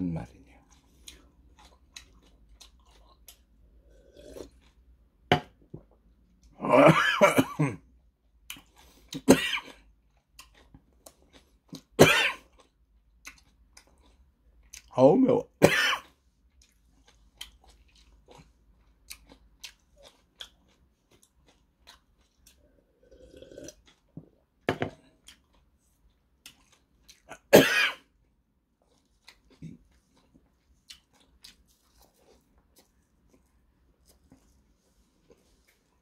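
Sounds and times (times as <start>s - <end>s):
close chewing with mouth smacks: 0.6s - 3.6s, 8.4s - 14.9s, 16.0s - 22.8s, 23.4s - 27.4s, 28.8s - 36.0s
person coughing: 6.6s - 7.8s, 9.2s - 9.8s, 12.0s - 12.5s, 15.6s - 16.1s, 27.3s - 28.1s.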